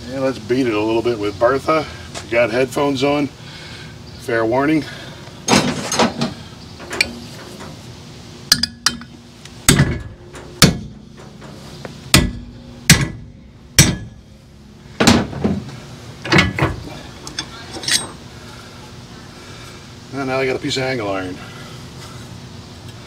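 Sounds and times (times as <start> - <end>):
hammer striking steel plate: 9.7 - 11.0, 12.2 - 14.2.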